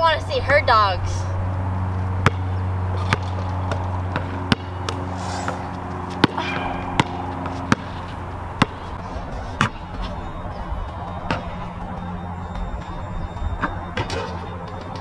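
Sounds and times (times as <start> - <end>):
basketball bouncing on asphalt: 2.2 - 10.2, 11.3 - 11.5.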